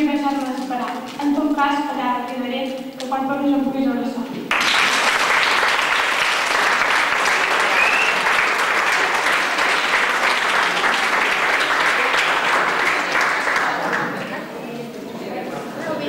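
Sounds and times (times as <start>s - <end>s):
audience applauding: 4.5s - 14.4s.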